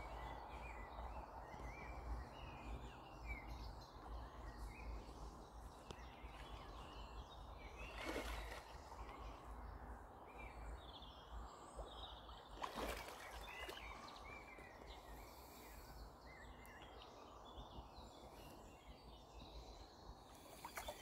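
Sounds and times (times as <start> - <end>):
faint birdsong: 0.0 - 21.0
splashes on lake surface: 7.8 - 9.2, 12.3 - 14.2, 20.5 - 21.0.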